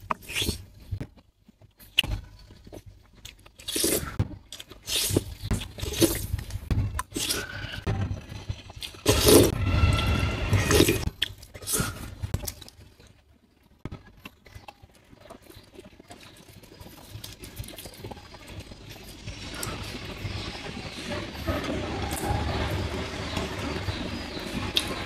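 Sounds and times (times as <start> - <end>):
quiet chewing: 0.0 - 7.9, 10.7 - 20.4.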